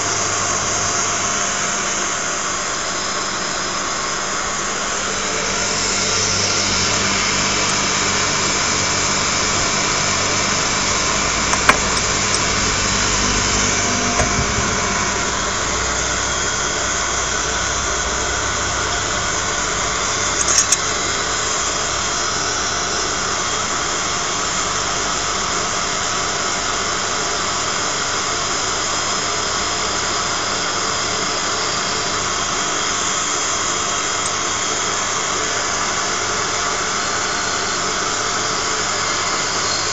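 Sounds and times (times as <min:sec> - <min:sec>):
grinding mill whirring drone: 0:00.0 - 0:39.9
sharp click: 0:20.4 - 0:20.9.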